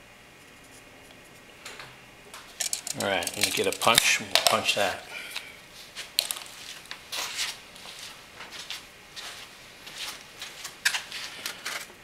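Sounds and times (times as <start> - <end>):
hand tools clicking and rustling: 2.6 - 4.7.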